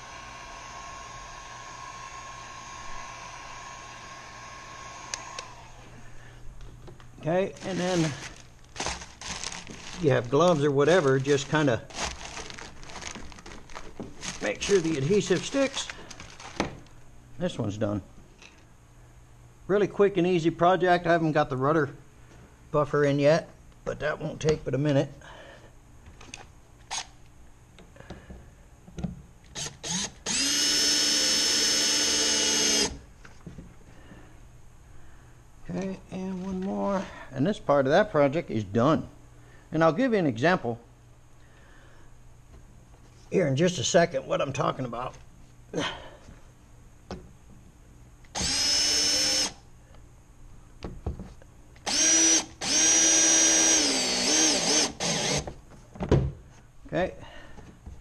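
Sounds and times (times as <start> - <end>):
heat gun fan motor whining: 0.0 - 16.9, 29.4 - 33.1, 48.2 - 49.7, 51.7 - 55.6
handling clicks and rustles: 6.6 - 16.9.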